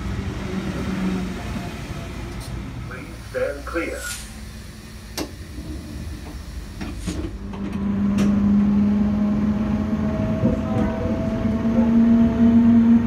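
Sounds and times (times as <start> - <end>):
train rumble: 0.0 - 13.0
train clunks: 5.0 - 8.6.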